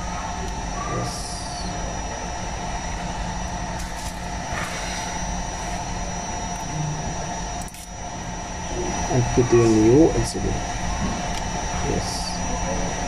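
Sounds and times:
blower fan drone: 0.0 - 13.0.

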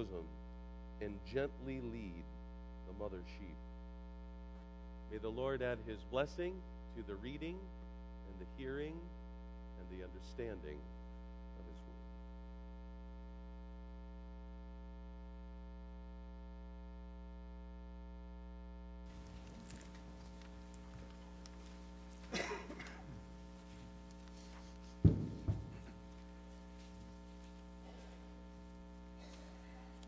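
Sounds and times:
electrical mains hum: 0.0 - 30.0
faint room noise: 19.0 - 30.0
sharp thumps: 25.0 - 26.1.

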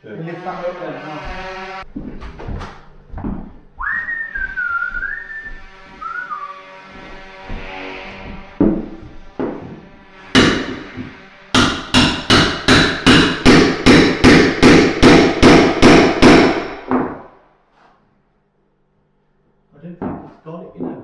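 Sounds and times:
hammer striking chisel: 7.0 - 17.3.

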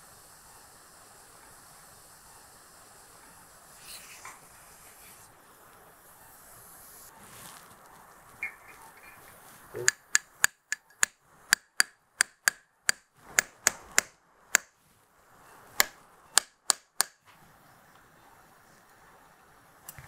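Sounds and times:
mallet tapping metal impactor: 9.8 - 14.7.

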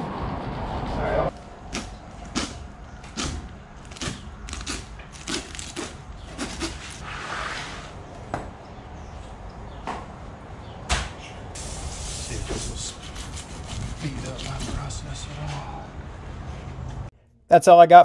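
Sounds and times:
knife scraping fish skin: 3.2 - 7.0, 13.0 - 14.9.

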